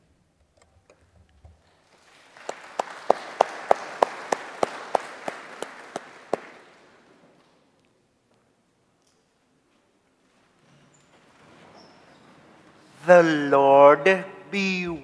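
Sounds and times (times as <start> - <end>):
loud nearby hand clapping: 1.8 - 7.3
congregation applauding: 1.8 - 7.4.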